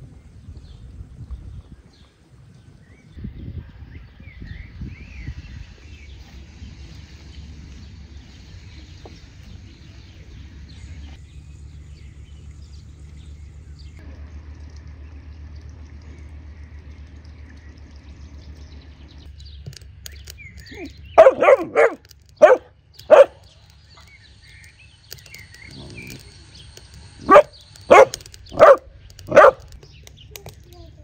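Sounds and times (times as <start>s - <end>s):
dog barking: 21.2s - 23.4s, 27.2s - 29.7s.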